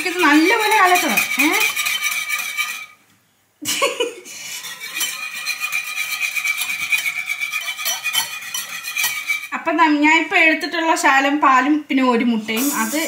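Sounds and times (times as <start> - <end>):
whisk clattering in a bowl: 0.0 - 3.0, 4.6 - 9.6.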